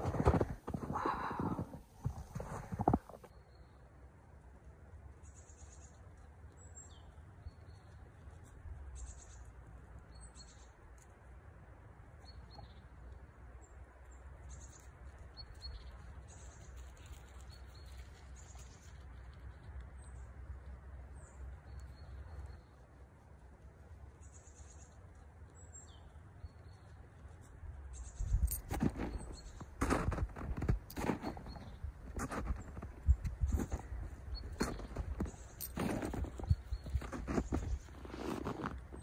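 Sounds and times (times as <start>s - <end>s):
small birds chirping: 12.2s - 23.0s, 24.0s - 39.0s.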